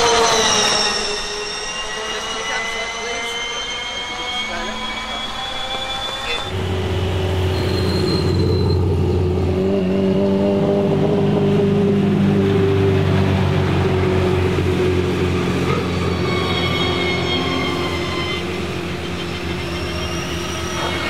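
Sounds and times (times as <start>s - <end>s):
rally car engine driving past: 6.5s - 21.0s.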